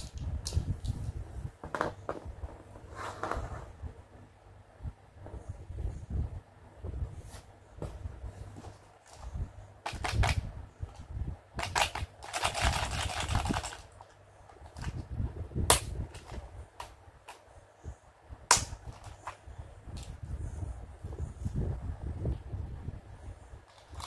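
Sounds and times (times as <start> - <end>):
sharp plastic clicks: 9.8 - 11.0, 11.6 - 15.0, 15.7 - 17.5, 18.5 - 20.1.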